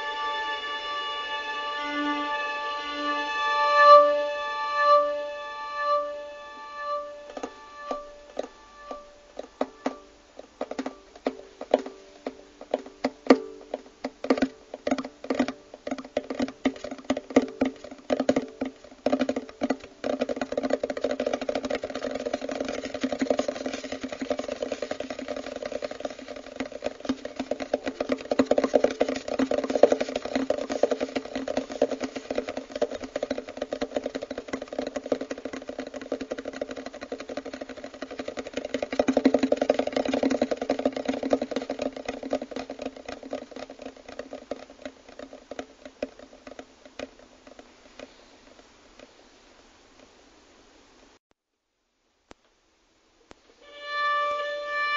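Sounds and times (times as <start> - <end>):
machine running with fast clatter: 19.2 - 45.6.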